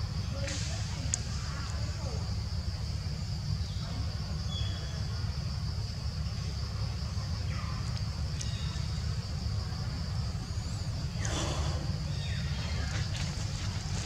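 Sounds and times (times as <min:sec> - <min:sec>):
faint chirps: 0:07.0 - 0:14.0.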